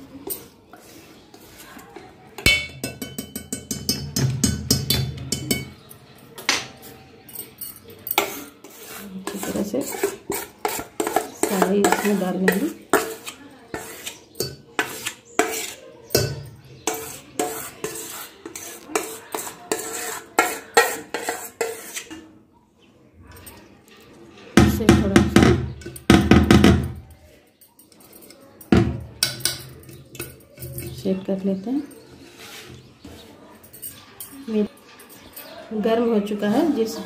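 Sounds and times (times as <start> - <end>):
spoon scraping metal bowl: 0.1 - 6.0, 7.4 - 22.3, 24.8 - 26.1, 27.9 - 33.2
metal clinks: 7.3 - 8.2.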